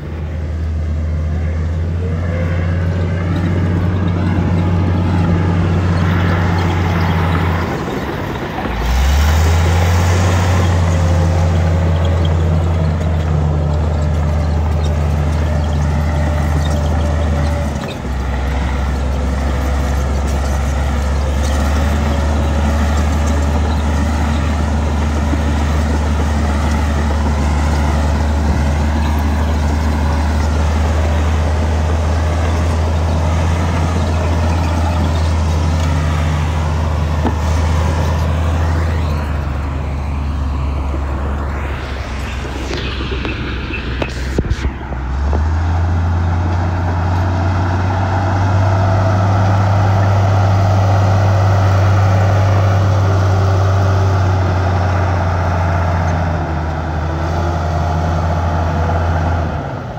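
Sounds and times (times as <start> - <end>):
diesel engine droning: 0.0 - 59.9.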